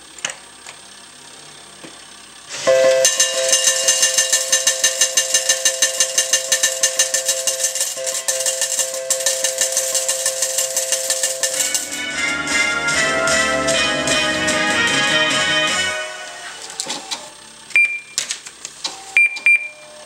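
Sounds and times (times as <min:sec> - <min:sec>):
slot machine bell tones: 0:02.7 - 0:16.6.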